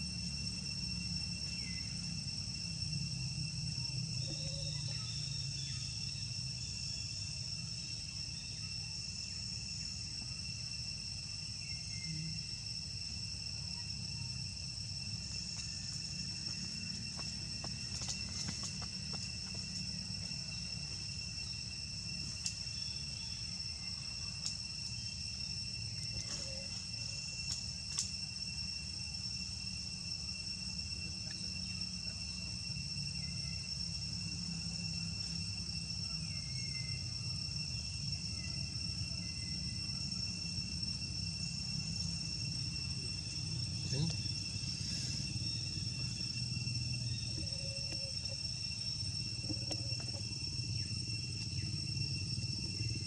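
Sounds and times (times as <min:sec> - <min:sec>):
insects trilling: 0:00.0 - 0:53.0
faint ticks: 0:24.4 - 0:24.6.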